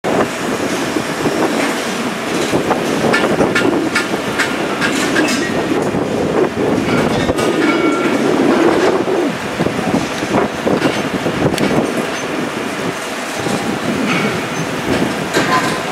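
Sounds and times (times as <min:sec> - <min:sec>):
train rumbling on rails: 0:00.0 - 0:15.9
wheel clicks over rail joints: 0:01.5 - 0:06.0.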